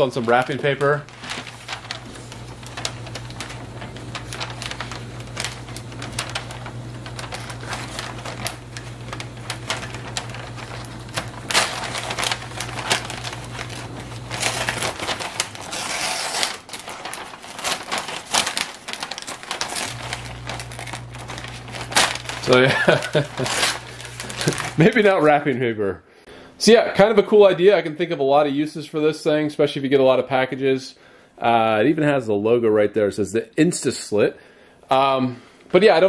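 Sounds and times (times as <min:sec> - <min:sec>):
paper rustling: 0:00.0 - 0:25.4
wrapping paper crinkling: 0:00.0 - 0:25.4.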